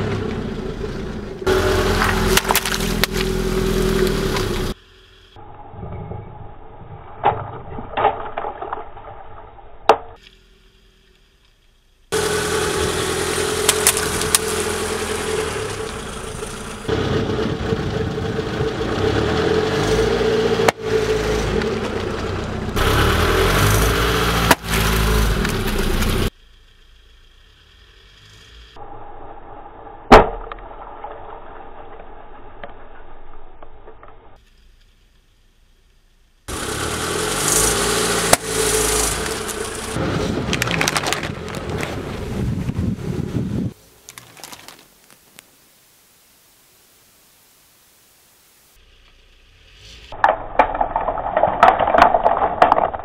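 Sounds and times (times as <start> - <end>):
car engine running: 0.0 - 7.2, 9.6 - 44.7
balloons bursting and splashing: 38.4 - 42.4.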